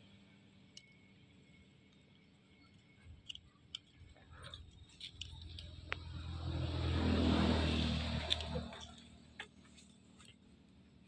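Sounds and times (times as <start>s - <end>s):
vehicle engine hum: 0.0s - 11.0s
small clicks: 1.8s - 6.1s.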